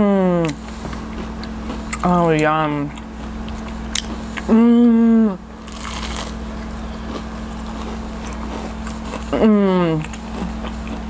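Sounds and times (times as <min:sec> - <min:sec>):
woman humming mmm: 0:00.0 - 0:00.6, 0:04.4 - 0:05.5, 0:09.3 - 0:10.2
chewing crispy food: 0:00.4 - 0:04.5, 0:05.4 - 0:11.0.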